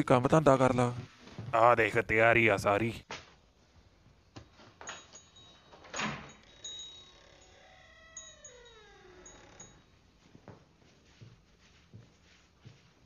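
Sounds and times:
high chime-like ringing: 4.9 - 10.0.

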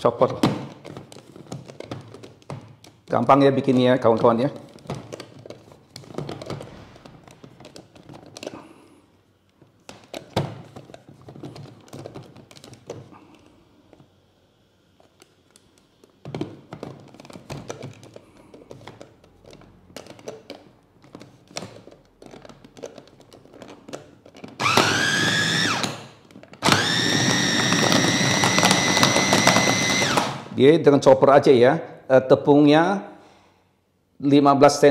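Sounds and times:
knocks and clicks of handling: 0.3 - 8.6, 9.4 - 14.1, 15.0 - 24.6
electric food chopper whine: 24.6 - 30.4.

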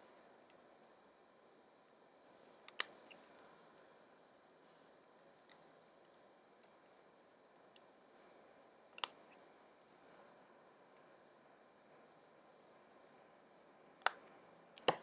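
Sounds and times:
faint clicks and taps: 11.9 - 15.0.

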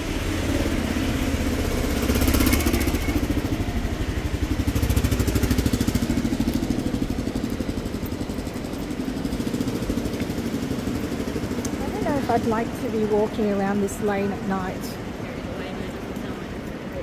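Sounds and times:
motorcycle engine running: 0.0 - 13.3
street traffic: 0.0 - 17.0.

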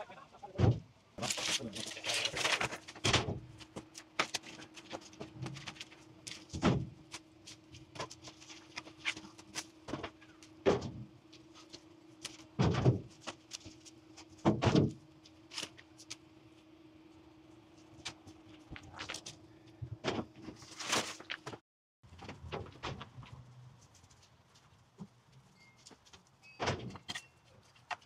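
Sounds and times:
steady low hum: 0.0 - 21.6.

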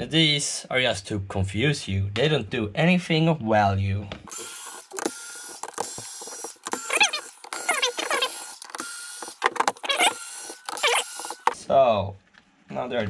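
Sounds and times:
electric screwdriver whining: 4.3 - 11.6
screws squeaking in plastic: 4.3 - 11.6.

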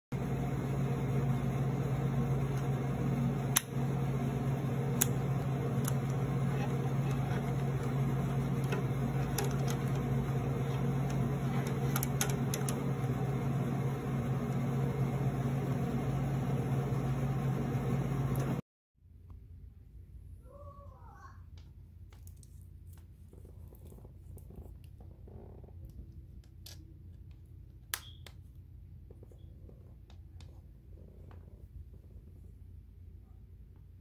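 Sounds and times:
low machinery hum: 0.2 - 18.6.

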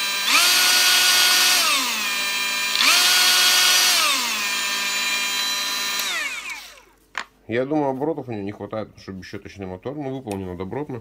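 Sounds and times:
angle grinder whining: 0.0 - 7.0
grinder winding down: 0.0 - 7.0.

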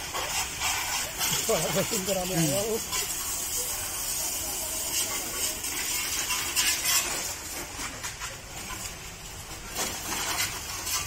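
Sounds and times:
high-pressure water jet spraying: 0.0 - 11.0.

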